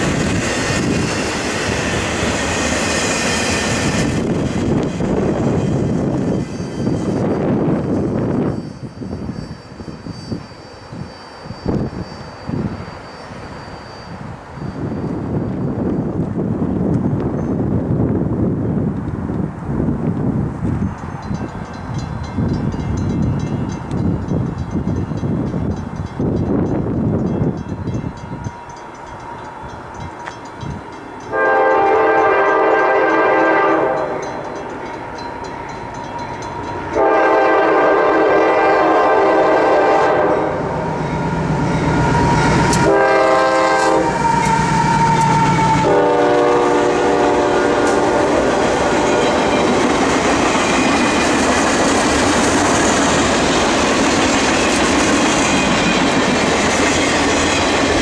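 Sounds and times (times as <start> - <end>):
train wheels clattering on rail: 0.0 - 9.4, 18.8 - 40.2, 41.0 - 58.0
locomotive horn blasts: 31.3 - 34.4, 36.9 - 49.3.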